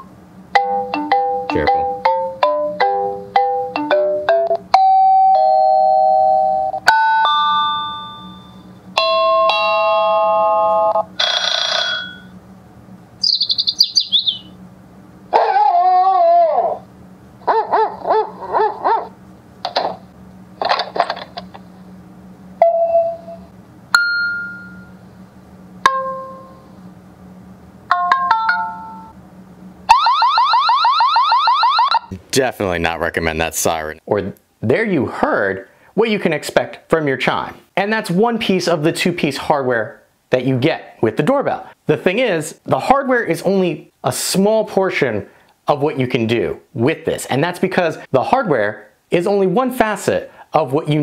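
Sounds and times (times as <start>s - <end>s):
doorbell chime melodies: 0.6s - 12.2s, 22.6s - 23.4s, 24.0s - 25.0s, 25.9s - 26.6s
warbling alarm siren: 10.2s - 12.4s, 13.2s - 14.6s, 29.8s - 32.1s
high chirping: 13.2s - 14.6s.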